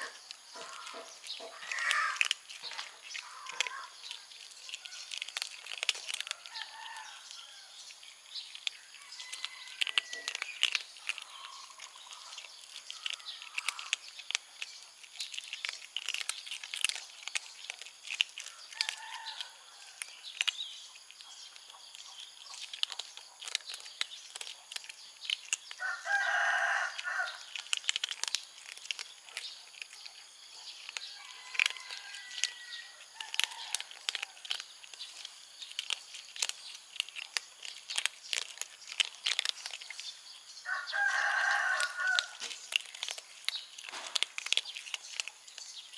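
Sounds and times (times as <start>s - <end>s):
animal call: 0.0s - 7.7s, 8.6s - 14.1s, 25.8s - 27.8s, 30.5s - 34.6s
kittens crunching dry kibble: 0.0s - 45.9s.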